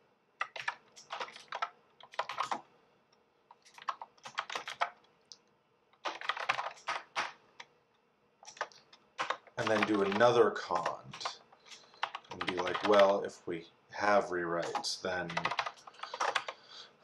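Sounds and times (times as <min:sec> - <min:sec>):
typing on computer keyboard: 0:00.4 - 0:02.7, 0:03.5 - 0:05.1, 0:06.0 - 0:07.7, 0:08.4 - 0:13.2, 0:14.6 - 0:16.6.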